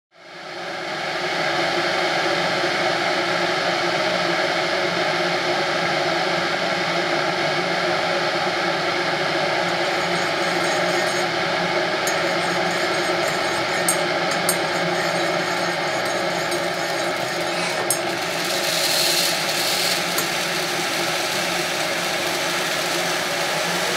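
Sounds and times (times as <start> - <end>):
electric kettle heating water: 9.6 - 23.9
spoon clinking against mug: 9.7 - 11.3, 12.1 - 20.4.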